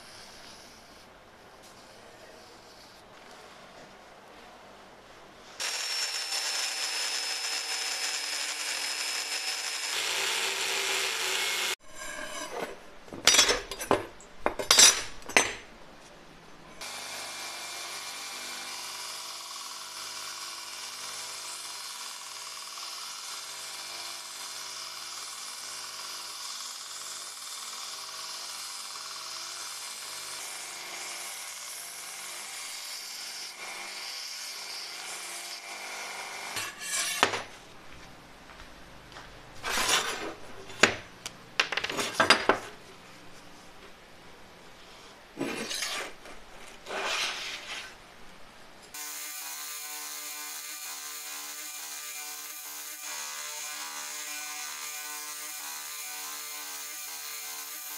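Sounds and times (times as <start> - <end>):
belt grinder grinding steel: 5.6 - 12.6, 49.0 - 57.9
power saw cutting steel: 5.6 - 12.8, 16.8 - 37.3, 48.9 - 57.9.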